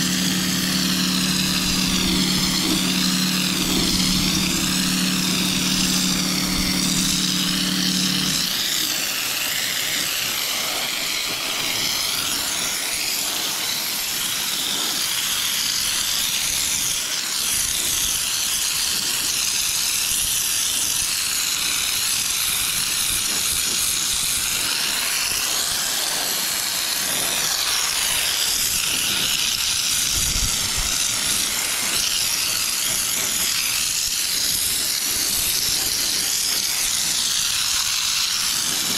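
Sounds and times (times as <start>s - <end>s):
low motor hum: 0.0s - 8.8s
air spray gun hissing: 0.0s - 38.9s.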